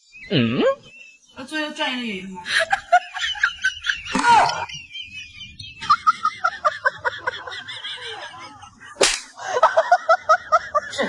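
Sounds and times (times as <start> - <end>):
chattering comic laughter: 5.8 - 11.0
whip crack: 9.0 - 9.4.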